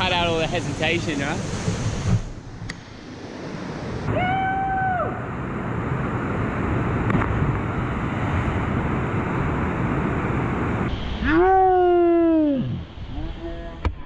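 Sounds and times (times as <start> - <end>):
river and waterfall rushing: 0.0 - 13.1
person yelling: 11.2 - 12.8.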